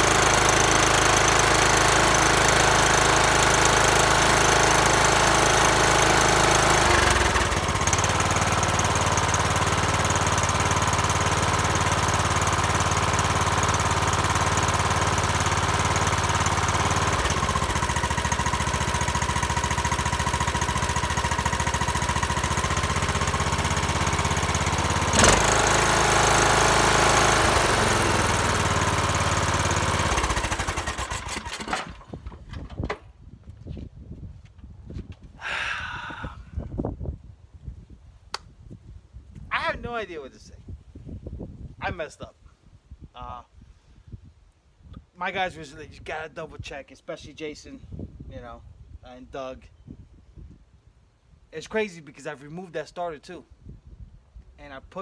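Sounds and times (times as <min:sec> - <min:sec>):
mower engine running: 0:00.0 - 0:32.9.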